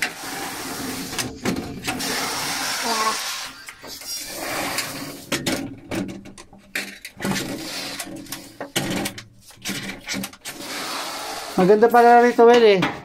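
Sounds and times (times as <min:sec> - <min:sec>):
rubbing: 0:00.0 - 0:12.6
clicks and knocks: 0:03.6 - 0:10.6.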